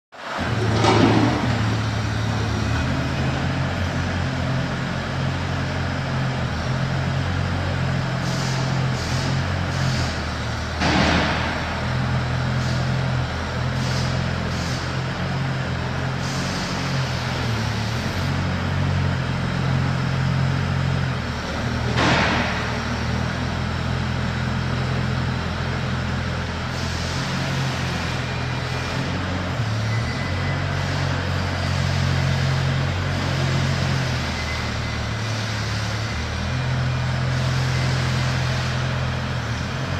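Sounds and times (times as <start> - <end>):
excavator engine running: 0.2 - 39.9
loud rushing noise: 8.1 - 15.0.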